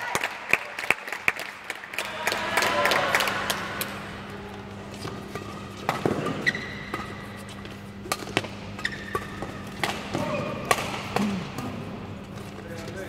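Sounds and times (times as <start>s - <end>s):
applause: 0.0s - 4.1s
shoes squeaking on court: 4.7s - 9.8s
rackets striking shuttlecock: 5.0s - 11.7s.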